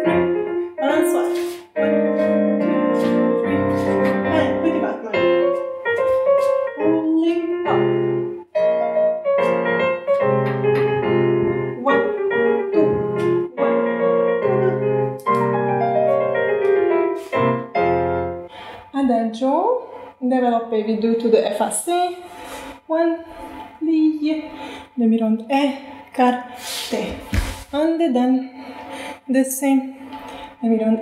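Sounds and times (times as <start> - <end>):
solo piano playing: 0.0 - 18.5.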